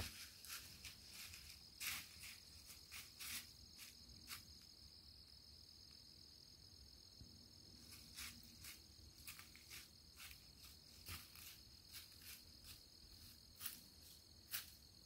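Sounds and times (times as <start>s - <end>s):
hooves crunching dry leaves: 0.0s - 4.4s, 7.8s - 14.8s.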